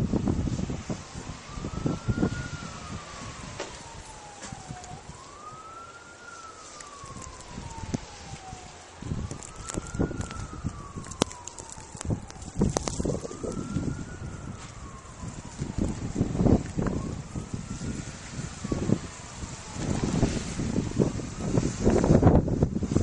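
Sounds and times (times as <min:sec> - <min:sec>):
emergency vehicle siren wailing: 0:00.0 - 0:23.0.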